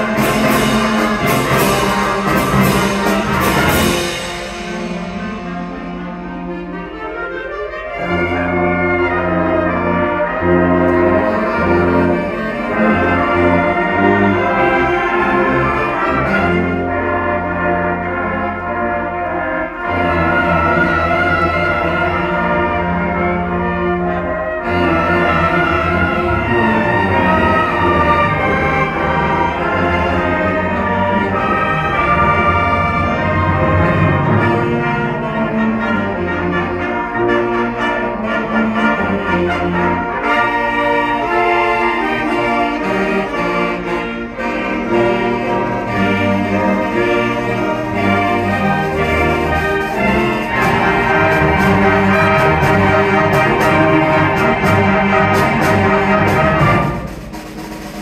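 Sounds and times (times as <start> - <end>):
sharp percussion strokes: 0.0 - 6.7
concert band playing carols: 0.0 - 58.0.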